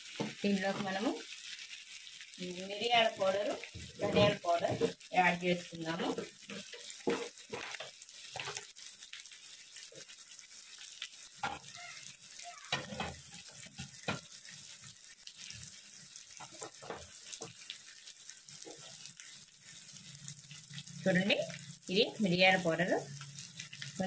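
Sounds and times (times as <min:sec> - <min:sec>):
meat sizzling in a pan: 0:00.0 - 0:24.0
spoon scraping a pan: 0:03.0 - 0:05.1, 0:05.8 - 0:08.8, 0:11.4 - 0:11.8, 0:12.7 - 0:14.6, 0:15.4 - 0:21.7.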